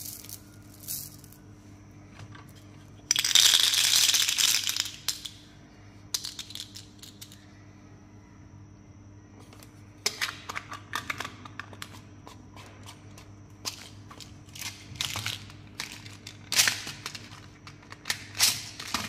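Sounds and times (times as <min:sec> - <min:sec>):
candies rattling in plastic container: 0:13.7 - 0:19.0.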